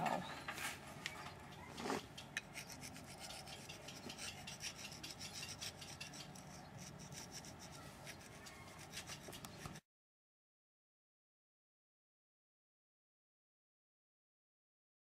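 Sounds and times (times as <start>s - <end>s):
hand rasp scraping stone: 1.8s - 9.8s.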